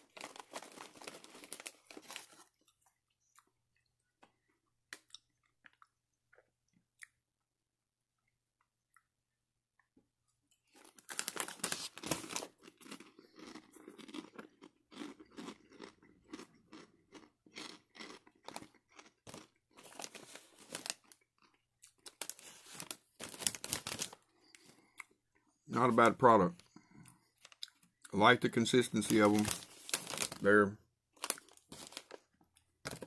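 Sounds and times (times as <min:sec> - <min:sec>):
person crunching pork rind: 0:10.7 - 0:25.2, 0:31.2 - 0:33.0.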